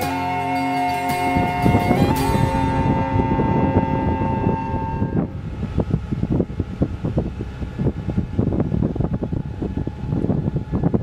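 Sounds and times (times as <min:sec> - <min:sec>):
background music: 0:00.0 - 0:05.0
wind buffeting microphone: 0:00.0 - 0:11.0.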